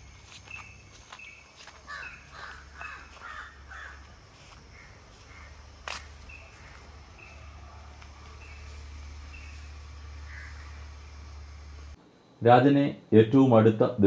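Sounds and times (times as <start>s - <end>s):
crow cawing: 1.8s - 5.7s, 10.2s - 11.0s.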